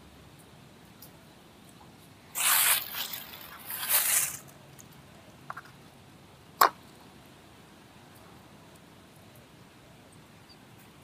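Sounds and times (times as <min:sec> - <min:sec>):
spray hissing blasts: 0:02.3 - 0:04.4.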